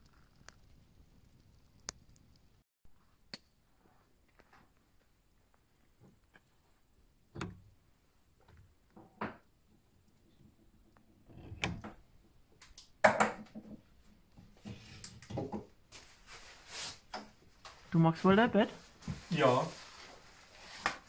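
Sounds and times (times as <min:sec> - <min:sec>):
rustling: 0:13.9 - 0:18.0, 0:18.7 - 0:21.0.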